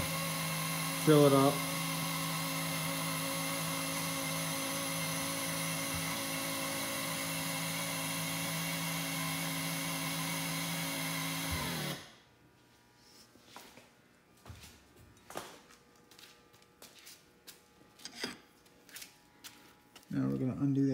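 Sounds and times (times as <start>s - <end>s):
pump motor running: 0.0s - 12.1s.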